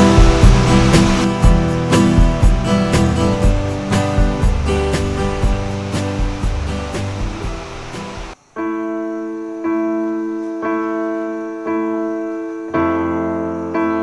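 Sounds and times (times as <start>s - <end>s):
keyboard playing soft chords: 0.0s - 7.6s
background music: 0.0s - 14.0s.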